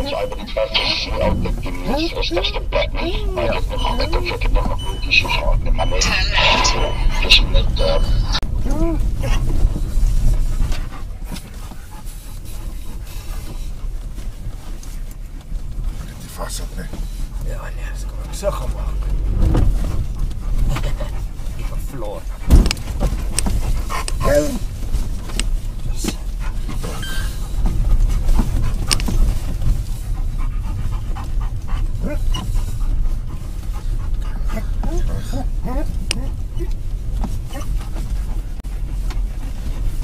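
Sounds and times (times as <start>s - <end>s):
dog panting: 0.0s - 8.4s, 9.0s - 15.2s, 19.7s - 40.0s
body and suspension rattles: 0.0s - 40.0s
car cabin rumble: 0.0s - 40.0s
car bump knock: 22.4s - 23.7s.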